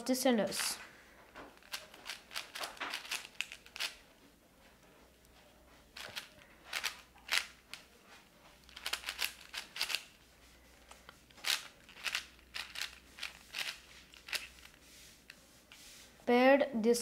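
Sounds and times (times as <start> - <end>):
puzzle cube clicking turns: 1.5 - 4.0, 6.0 - 7.9, 8.6 - 10.2, 10.9 - 14.8.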